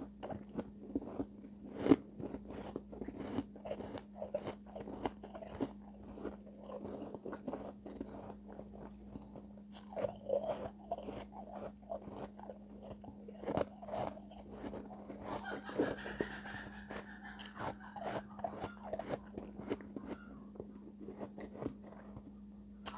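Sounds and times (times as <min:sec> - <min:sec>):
low steady hum: 0:00.0 - 0:22.9
ice crunching between teeth: 0:00.1 - 0:15.6, 0:17.4 - 0:22.3.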